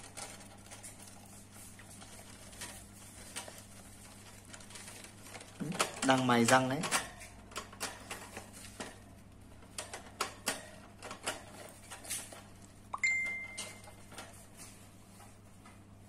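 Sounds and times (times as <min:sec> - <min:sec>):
brief high tone: 0:13.0 - 0:13.8.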